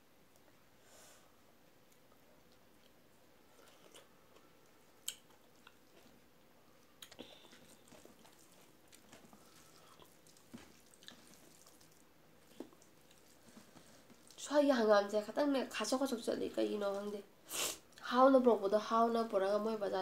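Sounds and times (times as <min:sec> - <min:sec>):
wet eating sounds: 0:01.9 - 0:14.5.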